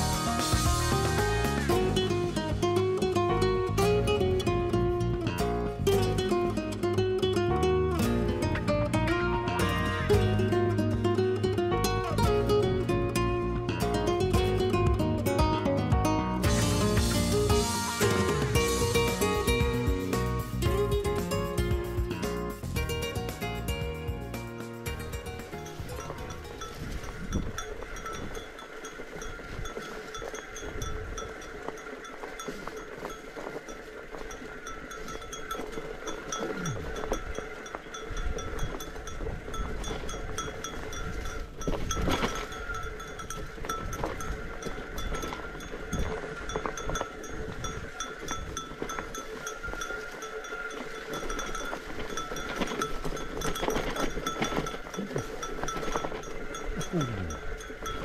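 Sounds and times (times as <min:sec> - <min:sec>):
bike tyres rolling on dirt: 0:00.0 - 0:58.0
small bell jingling: 0:24.9 - 0:58.0.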